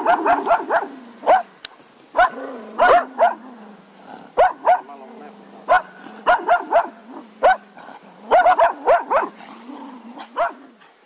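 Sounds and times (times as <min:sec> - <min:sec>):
dog barking: 0:00.0 - 0:01.5, 0:02.2 - 0:03.4, 0:04.4 - 0:05.0, 0:05.7 - 0:07.7, 0:08.3 - 0:09.4, 0:10.3 - 0:10.6.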